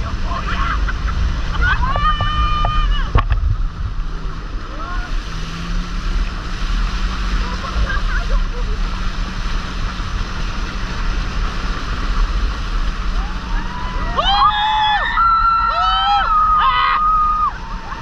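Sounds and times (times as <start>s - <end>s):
rushing wind: 0.0s - 18.0s
riders screaming: 1.5s - 3.1s, 13.1s - 18.0s.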